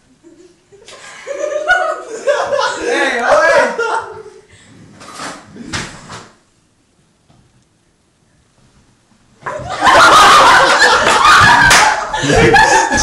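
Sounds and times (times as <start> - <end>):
group laughing loudly: 0.3 - 4.4, 9.5 - 13.0.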